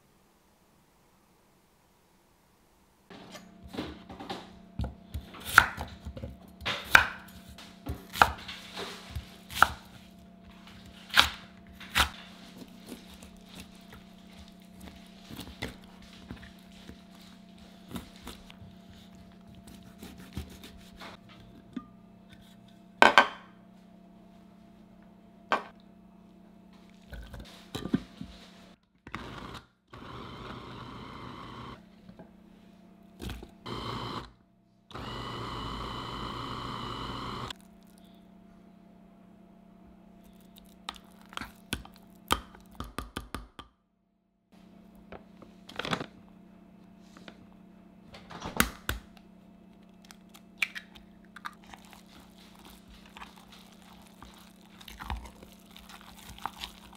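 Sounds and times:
electric food chopper motor: 0:29.0 - 0:31.8, 0:33.6 - 0:37.6.

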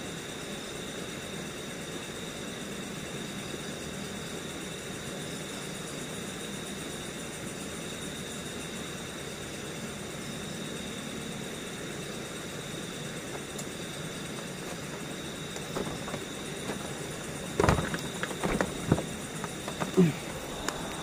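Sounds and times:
knocks and rustles: 0:14.6 - 0:21.0
stream rushing: 0:19.9 - 0:21.0.

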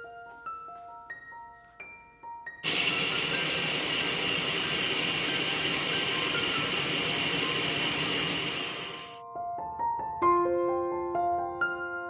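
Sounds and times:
pressure cooker venting steam: 0:02.6 - 0:09.2.

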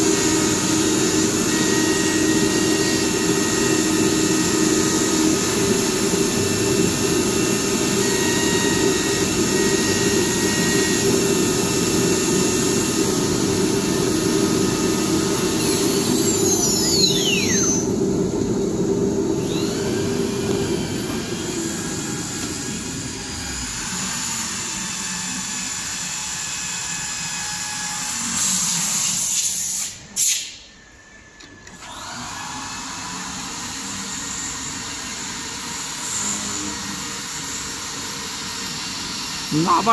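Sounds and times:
cnc router machining with whine: 0:00.0 - 0:39.9
short burst of hiss: 0:29.2 - 0:30.6.

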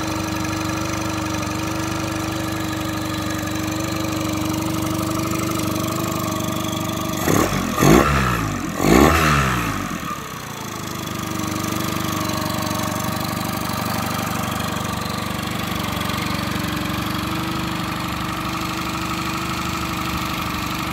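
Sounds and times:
outboard motor idling: 0:00.0 - 0:20.9.

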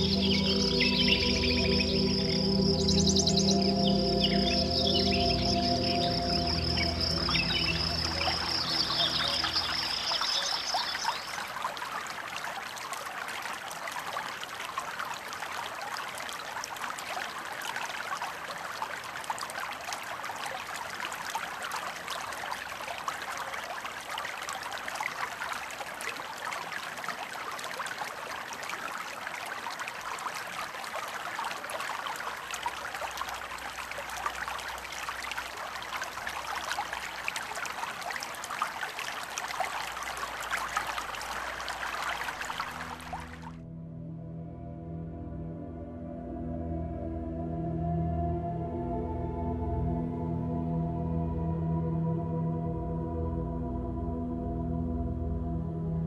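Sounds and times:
stream babbling over stones: 0:00.0 - 0:43.6.

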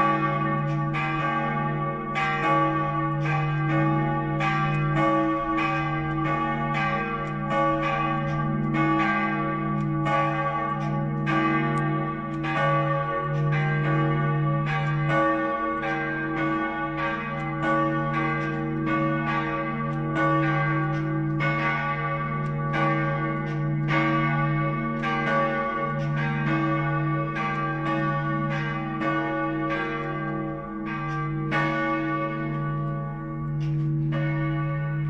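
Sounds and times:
church bells ringing: 0:00.0 - 0:35.0.

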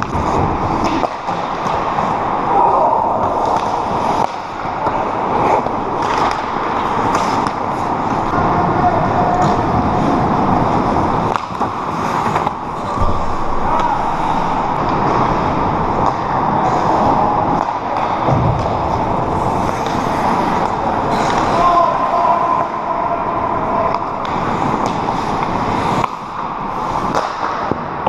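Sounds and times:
skate blades scraping ice: 0:00.0 - 0:08.4, 0:09.4 - 0:13.0, 0:16.2 - 0:21.8, 0:24.3 - 0:27.7
hockey sticks and puck clacking: 0:00.0 - 0:28.0.

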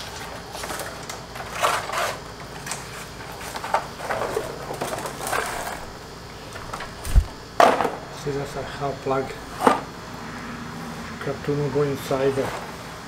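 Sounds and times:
scrapes and rustles of packaging: 0:00.0 - 0:07.3.

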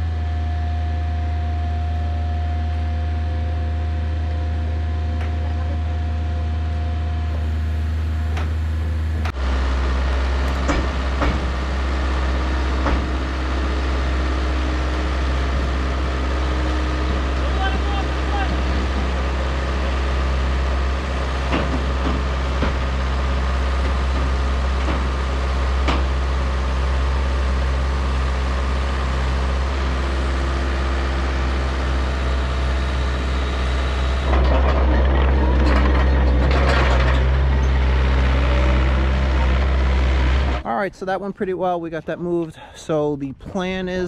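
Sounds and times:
diesel engines running: 0:00.0 - 0:44.0
sharp knocks: 0:10.6 - 0:11.6, 0:12.8 - 0:13.2, 0:21.5 - 0:22.9
rattling clatter: 0:34.2 - 0:39.5.

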